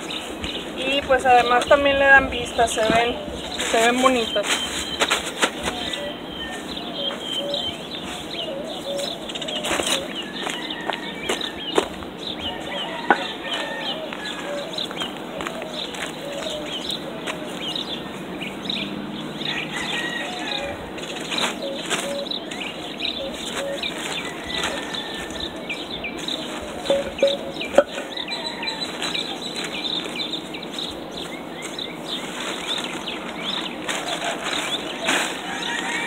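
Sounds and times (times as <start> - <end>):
plastic sheeting crinkling: 0.0 - 10.6, 20.0 - 27.8, 28.5 - 36.0
small birds chirping: 0.0 - 36.0.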